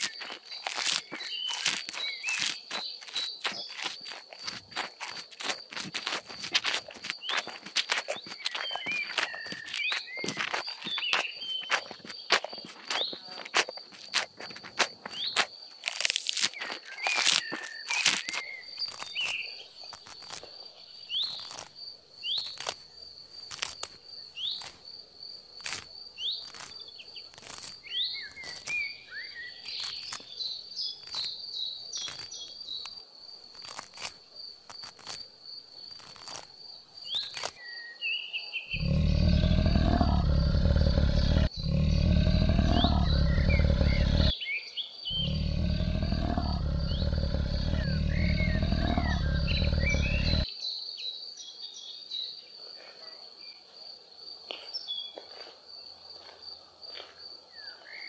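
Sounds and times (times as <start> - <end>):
bird chirps: 0.0 - 4.8, 6.8 - 13.5, 37.0 - 51.9
high insect trill: 0.0 - 58.0.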